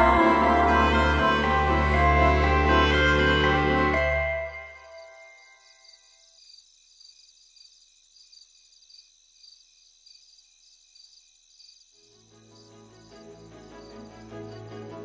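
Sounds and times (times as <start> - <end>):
soft music: 0.0 - 5.7, 12.1 - 15.0
crickets chirping: 4.5 - 15.0.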